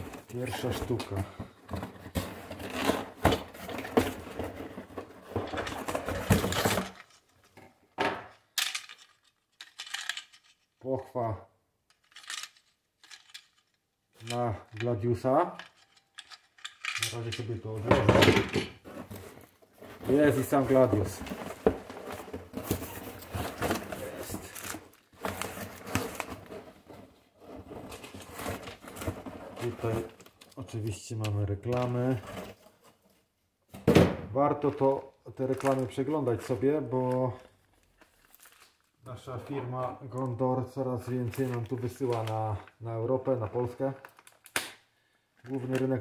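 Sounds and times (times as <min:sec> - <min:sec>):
cardboard rustling and scraping: 0:00.0 - 0:07.3, 0:18.8 - 0:30.4.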